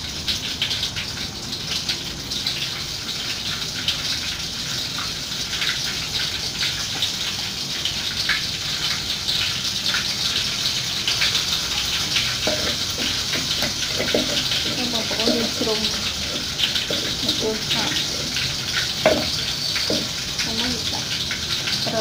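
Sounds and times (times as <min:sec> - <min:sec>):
water rushing: 0:09.8 - 0:22.0.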